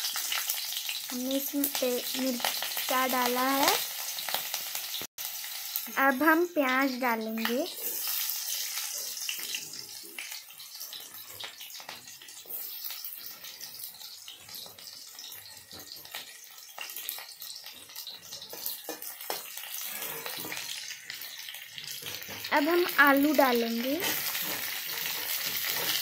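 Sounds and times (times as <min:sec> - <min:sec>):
onion sizzling in hot oil: 0:00.0 - 0:26.0
metal spatula scraping pan: 0:07.7 - 0:10.0, 0:17.7 - 0:22.5, 0:23.8 - 0:26.0.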